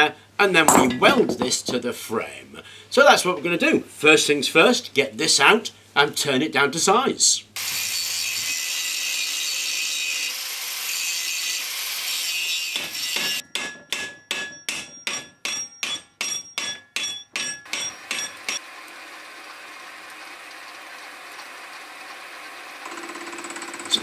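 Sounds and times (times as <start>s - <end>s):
angle grinder cutting metal: 7.6s - 13.4s.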